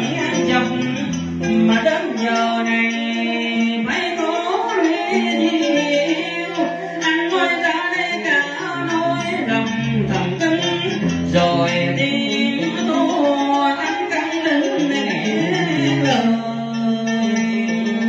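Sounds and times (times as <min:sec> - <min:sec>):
man singing through microphone: 0:00.0 - 0:18.0
plucked string instruments: 0:00.0 - 0:18.0.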